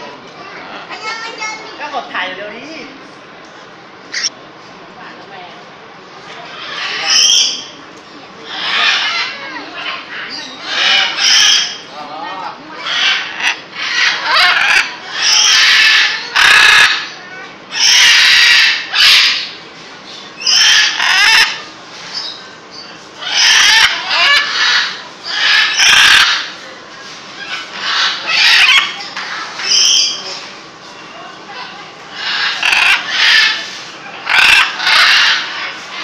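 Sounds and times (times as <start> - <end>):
parrots calling: 0.4 - 1.8, 4.1 - 4.3, 6.3 - 7.8, 8.4 - 36.0.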